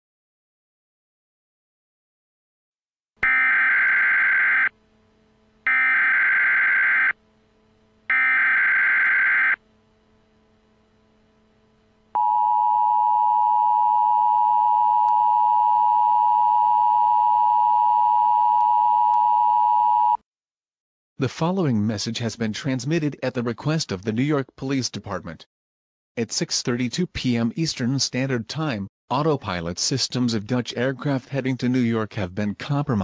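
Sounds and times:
screechy data tone bursts: 5.7 - 7.2, 8.1 - 9.6.

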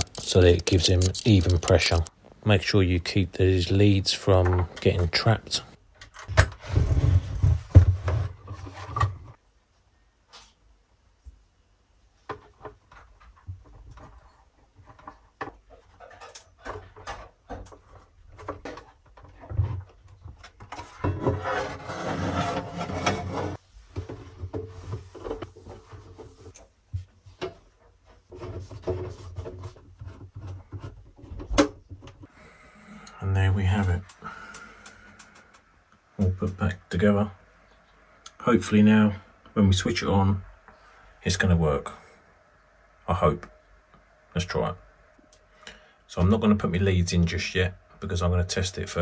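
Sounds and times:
metal scraping and rubbing: 0.0 - 2.1, 20.7 - 23.7.

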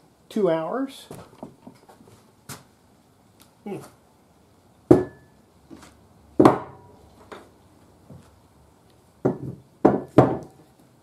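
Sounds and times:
hard objects knocking on wood: 6.4 - 7.4, 9.2 - 10.6.

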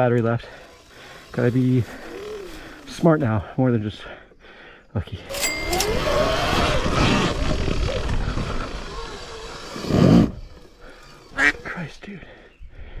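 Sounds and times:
electric motor whining: 0.2 - 3.5, 5.3 - 11.9
tyre dirt and wind noise: 5.3 - 11.9.

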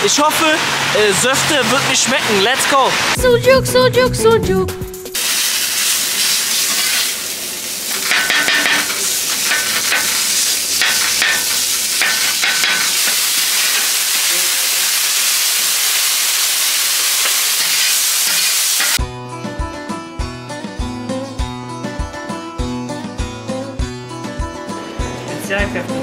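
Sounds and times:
loud steady hiss: 5.2 - 19.0.

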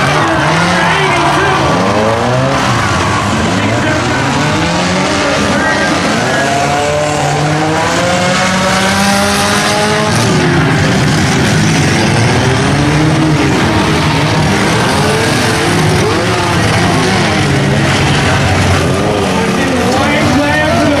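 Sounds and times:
race car engines revving: 0.0 - 21.0.

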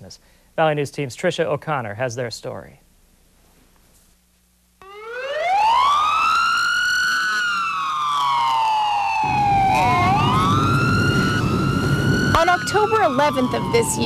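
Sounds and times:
emergency vehicle siren wailing: 4.8 - 14.0.

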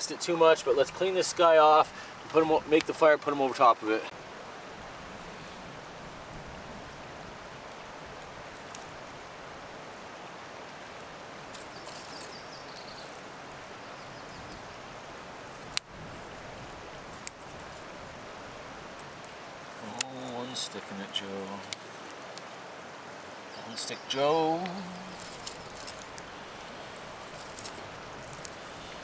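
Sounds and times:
dry twigs being handled: 6.2 - 9.3, 10.9 - 13.4, 15.4 - 29.0
twigs snapping: 8.2 - 9.0, 11.5 - 13.2, 17.1 - 17.8, 19.8 - 20.4, 21.6 - 22.6, 24.6 - 28.7.

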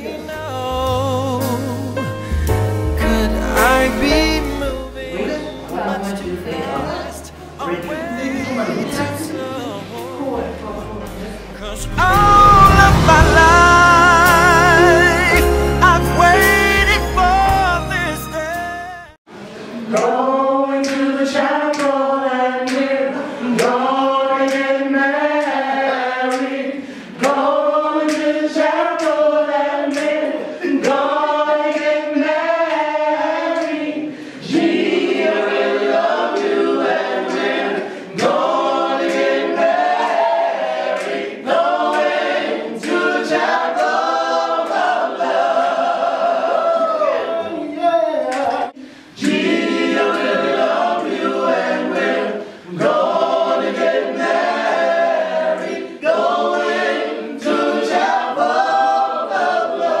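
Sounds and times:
group singing a cappella: 0.0 - 18.6, 19.3 - 60.0.

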